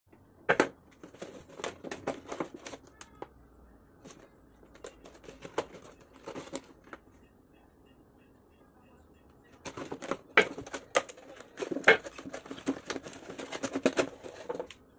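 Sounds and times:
plastic packaging crackling: 9.6s - 14.8s.

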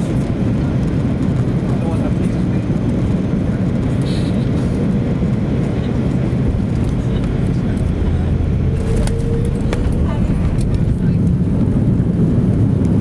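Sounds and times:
airliner engines rumbling: 0.0s - 13.0s
rushing air: 4.0s - 13.0s.

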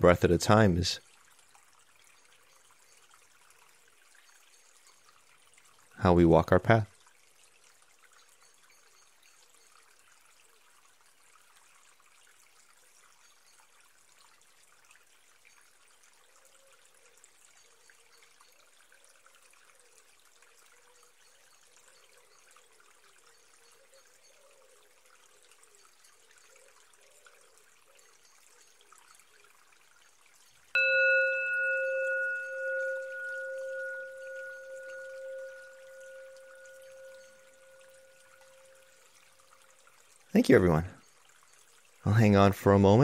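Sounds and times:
faint steady hiss: 0.0s - 43.0s
faint wavering hum: 30.8s - 39.9s.

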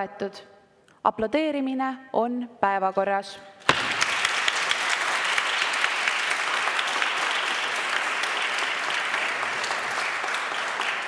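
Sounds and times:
people applauding: 3.7s - 11.0s.

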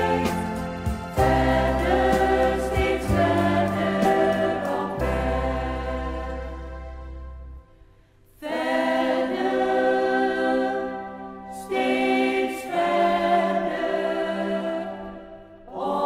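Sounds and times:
choir singing in harmony: 0.0s - 7.6s, 8.3s - 16.0s.

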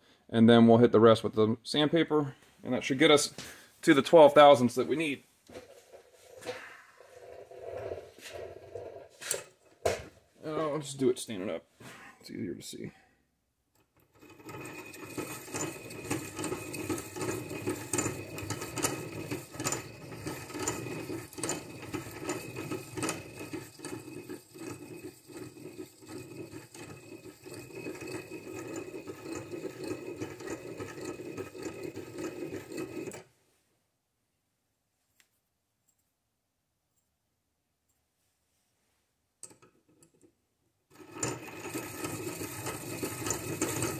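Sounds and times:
abrasive wheel grinding steel: 13.8s - 33.2s, 40.9s - 43.9s.

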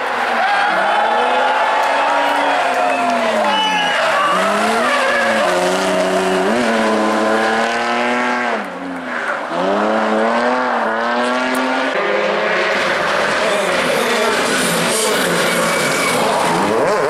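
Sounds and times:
car engine revving hard: 3.4s - 8.8s, 9.4s - 17.0s.

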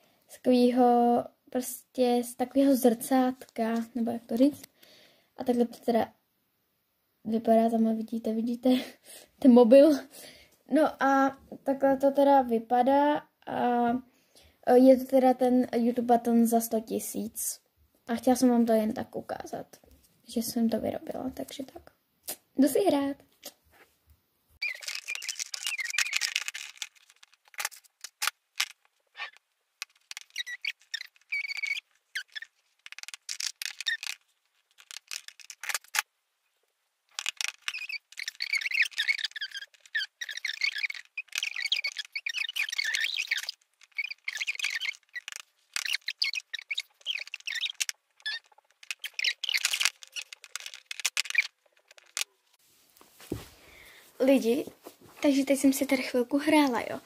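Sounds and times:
high-pitched squeaky voice chatter: 24.6s - 28.3s, 29.2s - 34.2s, 37.2s - 52.3s.

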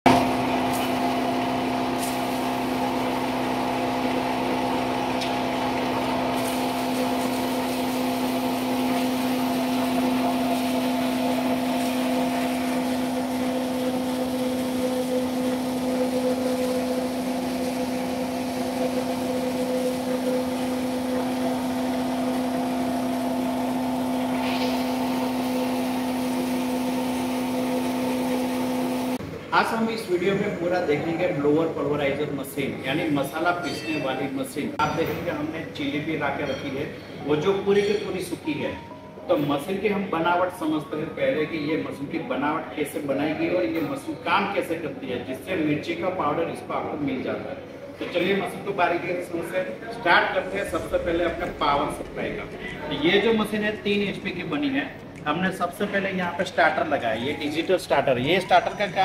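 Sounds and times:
pulverizer motor hum and whine: 0.1s - 29.3s, 50.3s - 55.8s.

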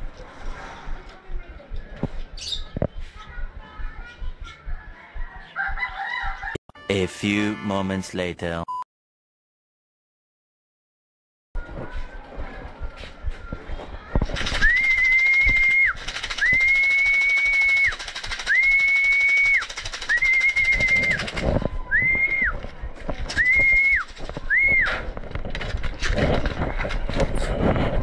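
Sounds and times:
person whistling high notes: 14.6s - 21.3s, 21.9s - 22.6s, 23.4s - 25.0s.

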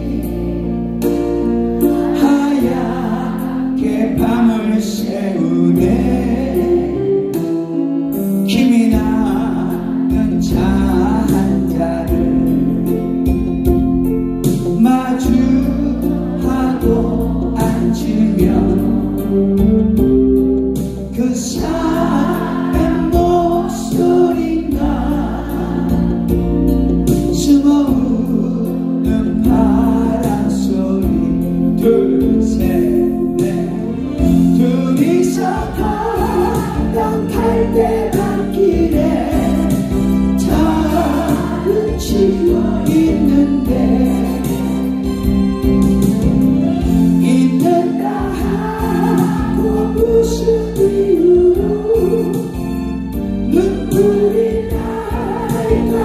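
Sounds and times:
group of voices singing: 0.0s - 7.5s, 15.2s - 19.6s, 21.2s - 27.6s, 32.7s - 45.4s, 46.6s - 52.6s, 53.5s - 56.0s
instrumental backing with bass: 0.0s - 56.0s.

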